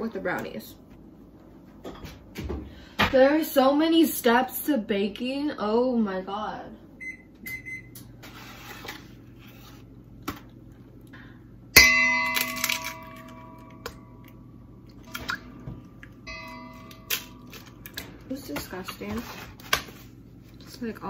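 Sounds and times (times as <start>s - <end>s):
metal bowl ringing: 11.7s - 18.6s.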